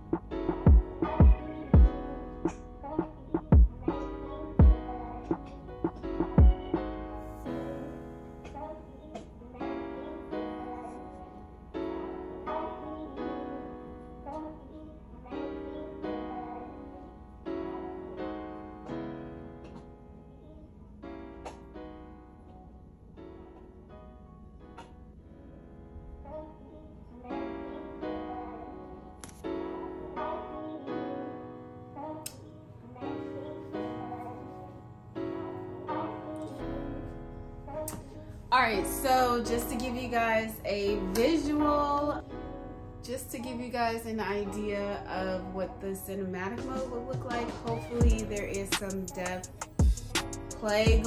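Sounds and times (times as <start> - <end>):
slow piano chords: 0.0 - 51.0.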